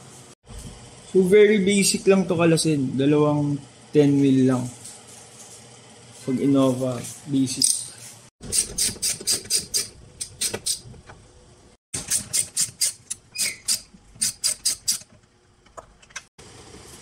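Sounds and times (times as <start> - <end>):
ratchet wrench clicking: 12.0 - 15.1.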